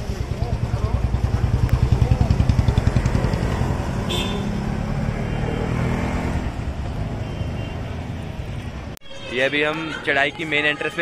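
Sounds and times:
vehicle engine running: 0.0s - 6.0s
street rumble: 0.0s - 11.0s.

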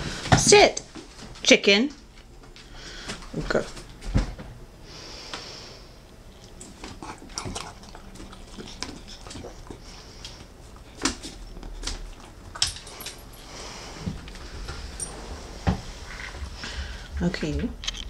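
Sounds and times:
dog chewing and licking: 6.3s - 14.6s.

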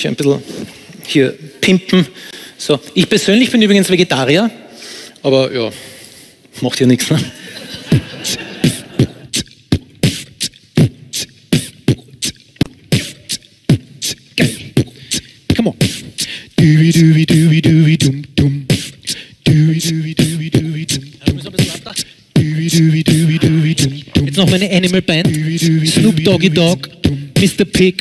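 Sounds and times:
beatboxing kick and snare: 7.1s - 28.0s
hummed bass line: 22.4s - 27.6s.

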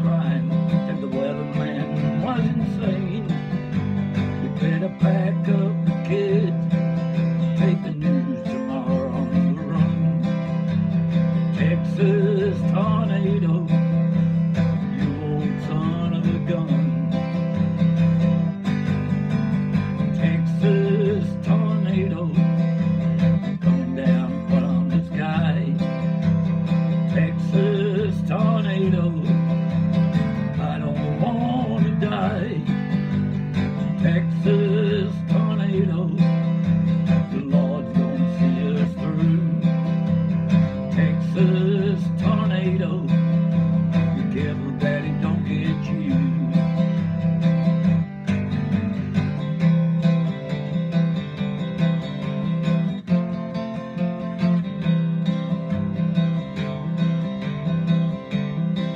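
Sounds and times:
man singing: 0.0s - 18.2s, 19.7s - 47.2s
acoustic guitar strumming: 0.0s - 58.9s.

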